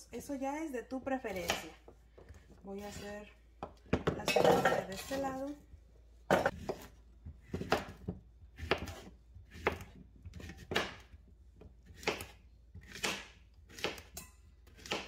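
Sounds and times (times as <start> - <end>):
knife slicing on wooden board: 8.6 - 11.0.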